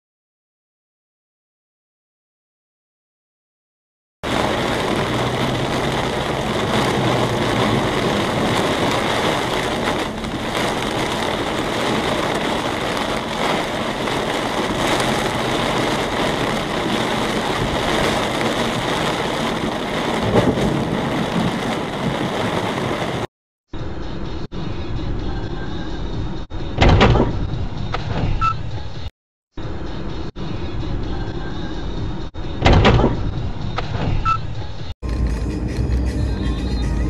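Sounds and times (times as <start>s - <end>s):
rain on a car: 4.2s - 23.3s, 35.0s - 37.0s
tyre noise on wet road: 4.2s - 23.3s, 35.0s - 37.0s
low rumble: 4.2s - 28.5s, 35.0s - 37.0s.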